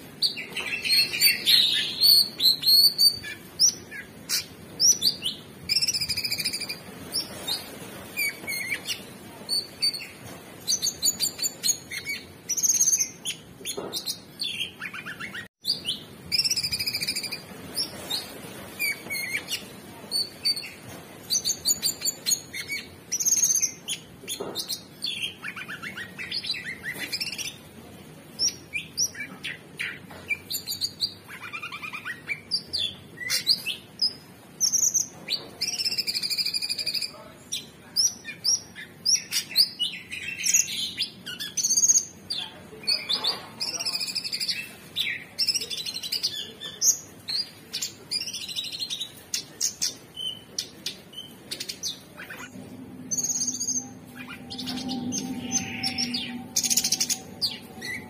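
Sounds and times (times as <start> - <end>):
bird singing chirps and trills: 47.4 - 58.0.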